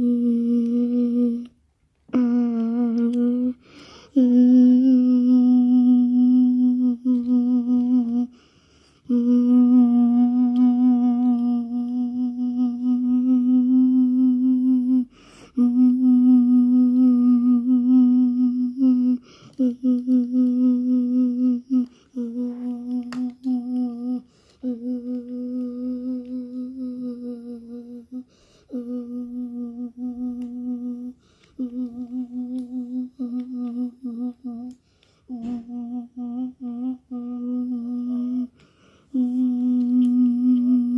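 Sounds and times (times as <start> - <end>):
person humming low note: 0.0 - 8.4, 9.0 - 38.5, 39.1 - 40.9
breathing: 3.6 - 4.2, 8.3 - 9.1, 15.1 - 15.6, 19.2 - 19.6, 21.8 - 22.2, 24.2 - 24.6, 28.2 - 28.8, 31.2 - 31.6, 34.8 - 35.3, 38.5 - 39.2.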